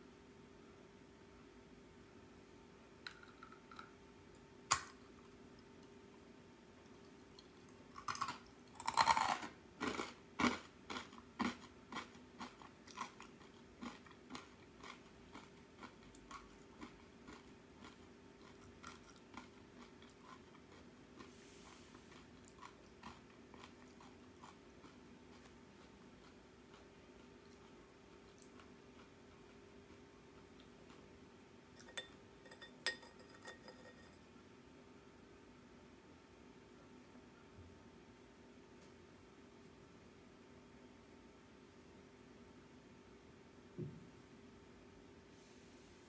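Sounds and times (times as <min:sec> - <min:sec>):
rice cracker crunching: 0:07.9 - 0:21.3, 0:22.0 - 0:27.7.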